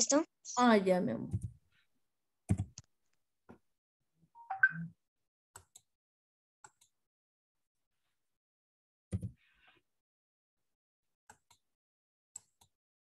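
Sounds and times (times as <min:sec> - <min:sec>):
two-tone electronic blip: 0:04.4 - 0:04.9.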